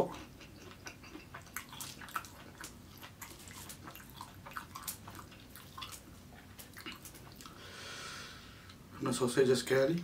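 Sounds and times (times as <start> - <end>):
mouth clicks and smacks: 0.1 - 7.6
wet chewing: 0.1 - 7.6.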